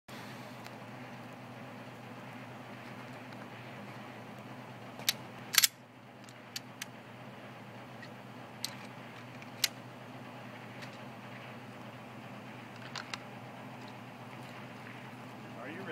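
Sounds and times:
pistol slide racking clack: 0:05.0 - 0:05.8
pistol metallic clicks: 0:05.0 - 0:06.9.

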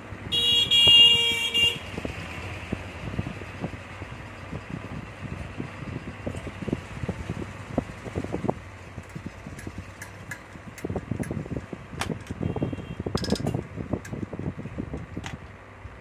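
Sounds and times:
fan motor humming: 0:00.0 - 0:16.0
knocks and clicks of handling: 0:09.0 - 0:12.4, 0:13.1 - 0:14.2, 0:14.9 - 0:15.6.

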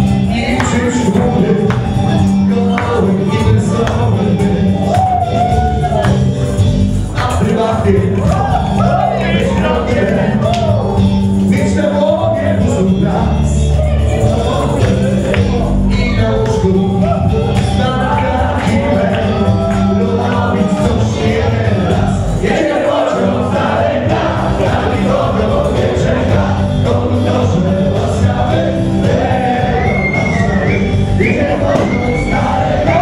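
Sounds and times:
dance music with singing: 0:00.0 - 0:33.0.

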